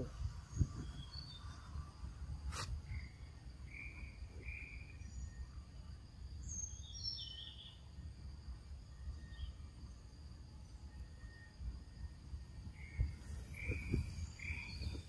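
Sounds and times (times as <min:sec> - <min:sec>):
bird chirps: 0:00.0 - 0:01.8, 0:02.6 - 0:05.5, 0:06.4 - 0:07.9, 0:10.6 - 0:15.0
insect drone: 0:00.0 - 0:15.0.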